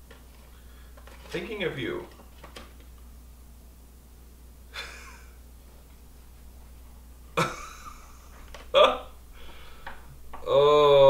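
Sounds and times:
soft breath: 0.5 - 1.0, 9.3 - 10.1
short breathy laugh: 4.7 - 5.4.

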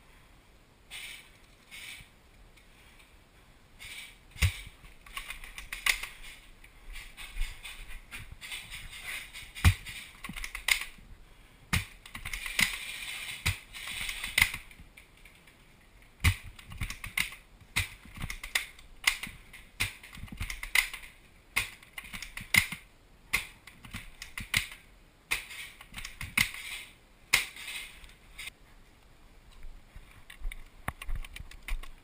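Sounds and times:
hissy rustles: 3.7 - 10.4
sharp clicks and knocks: 16.2 - 28.5.

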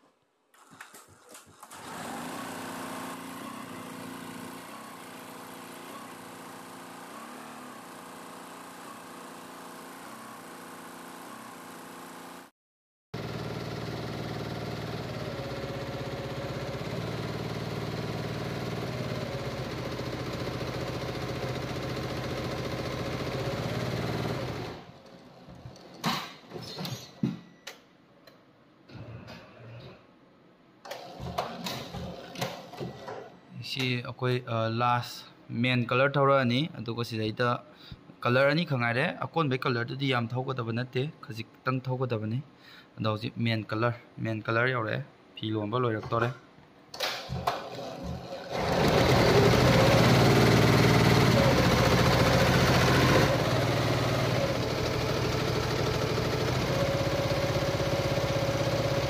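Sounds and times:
embroidery machine running: 1.6 - 12.5, 13.2 - 25.6, 47.3 - 59.0.

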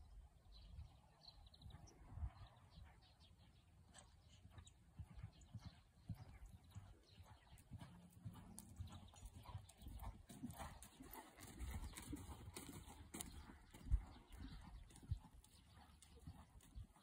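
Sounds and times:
hoofbeats on sand: 1.6 - 17.0.

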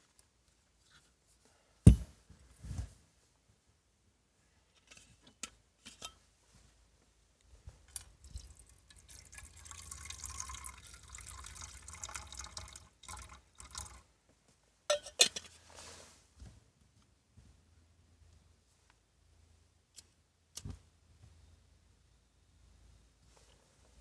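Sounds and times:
water pouring into pot: 8.2 - 14.0.

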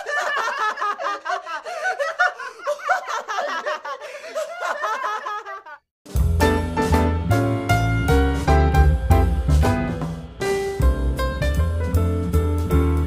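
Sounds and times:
high-pitched laughter: 0.0 - 5.8
piano music: 6.1 - 13.0.

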